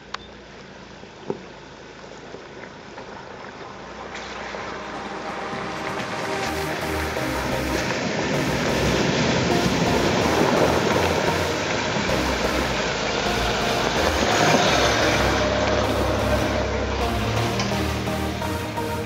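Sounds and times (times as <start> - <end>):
water splashing around wheels: 1.6 - 7.1.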